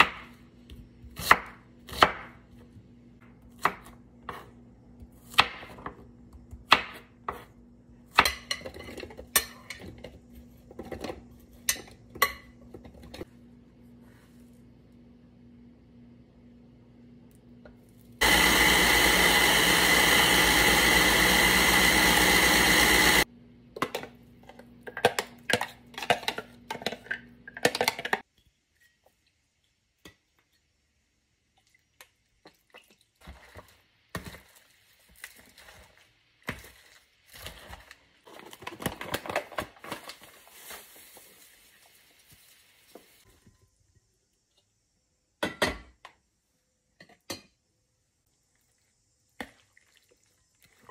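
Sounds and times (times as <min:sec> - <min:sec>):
food processor chopping: 0:18.2 - 0:23.3.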